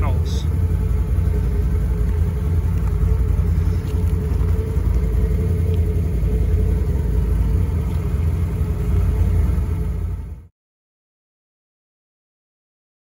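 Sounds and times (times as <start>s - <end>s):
atv engines idling: 0.0s - 10.5s.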